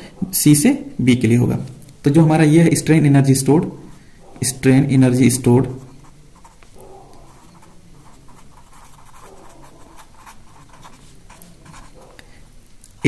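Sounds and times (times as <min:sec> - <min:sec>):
pen scratching on paper: 0:05.8 - 0:12.1.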